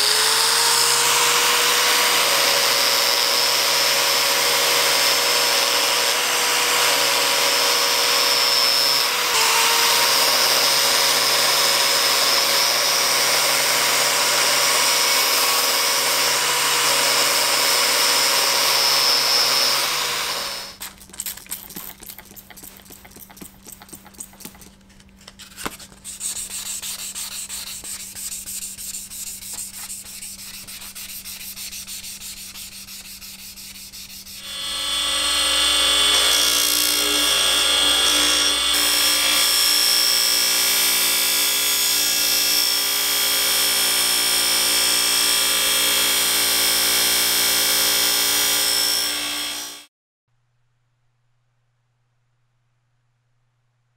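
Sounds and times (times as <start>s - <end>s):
bench grinder buffing wheel: 0.0s - 20.8s, 34.4s - 40.3s
sandpaper scrubbing steel: 25.9s - 34.4s.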